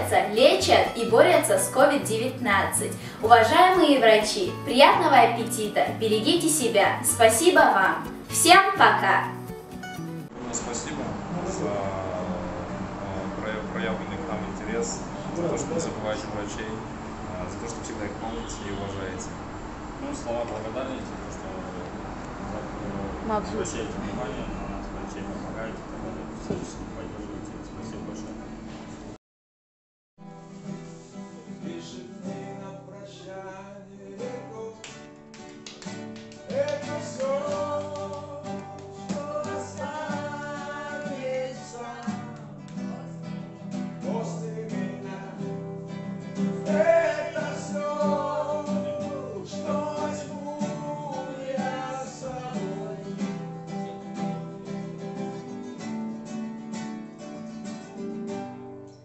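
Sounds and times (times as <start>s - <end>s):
acoustic guitar strumming: 0.0s - 26.3s, 30.3s - 59.0s
person singing: 36.4s - 43.2s, 46.4s - 53.6s.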